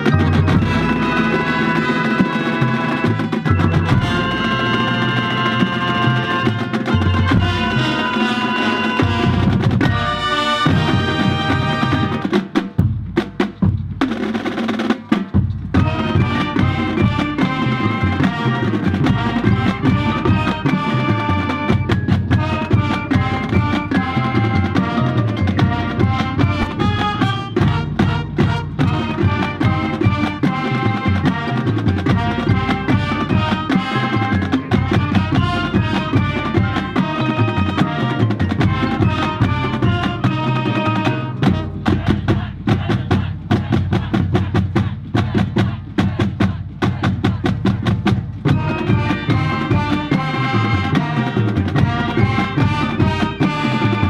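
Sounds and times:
marching band playing: 0.0s - 54.0s
drum hits: 24.7s - 30.7s, 41.4s - 54.0s.

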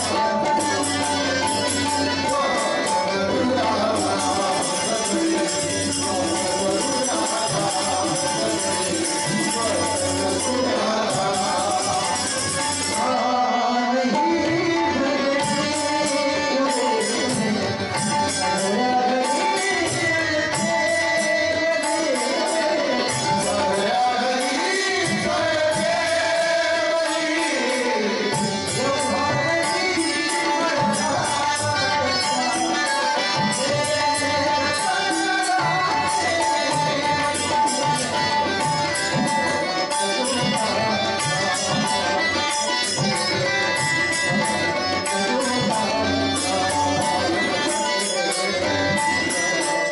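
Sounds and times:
harmonium: 0.0s - 49.9s
man singing: 0.0s - 49.9s.

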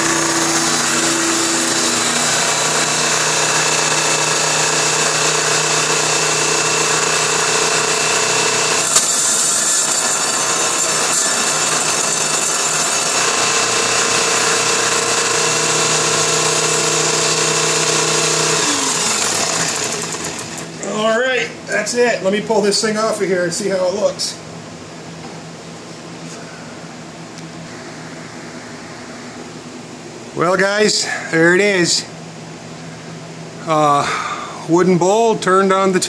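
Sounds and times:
table saw cutting wood: 0.0s - 20.9s.

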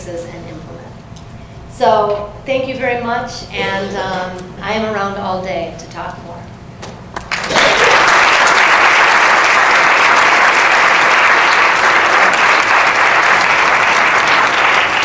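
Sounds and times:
audience applauding: 7.2s - 15.0s.

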